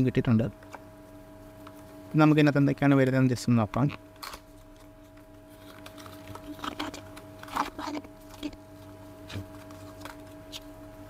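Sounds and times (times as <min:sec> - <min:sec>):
faint steady hum: 0:00.0 - 0:11.0
cardboard box rustling: 0:04.7 - 0:10.7.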